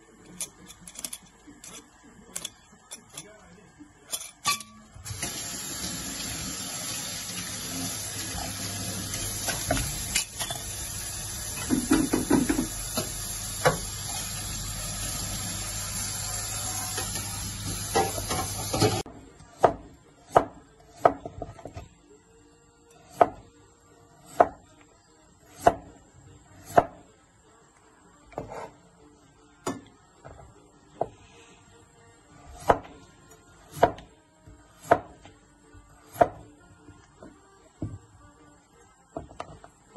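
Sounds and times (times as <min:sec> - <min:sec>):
kitchenware clattering: 0:04.1 - 0:04.9, 0:11.6 - 0:13.9, 0:16.8 - 0:19.0.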